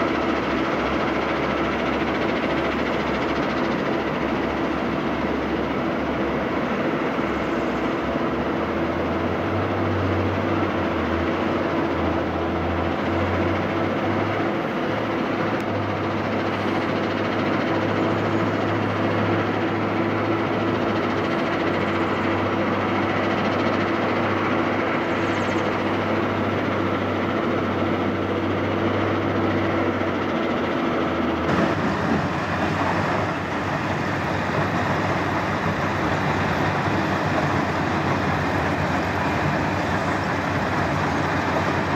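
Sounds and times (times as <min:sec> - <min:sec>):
diesel engine hum: 0:00.0 - 0:41.9
excavator and jaw crusher: 0:29.0 - 0:41.9.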